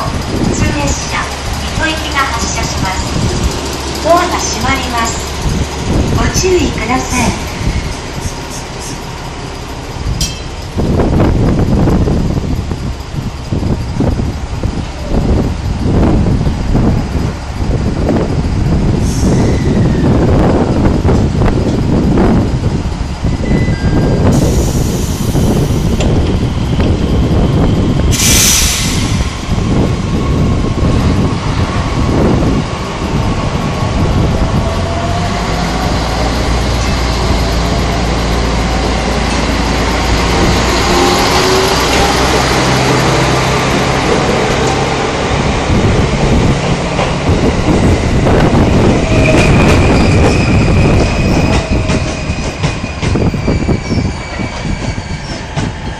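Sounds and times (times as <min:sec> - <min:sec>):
diesel engine under load: 0:00.0 - 0:54.4
high wheel squeal: 0:19.1 - 0:20.2, 0:48.8 - 0:55.9
wheels clacking over rail joints: 0:35.0 - 0:48.2.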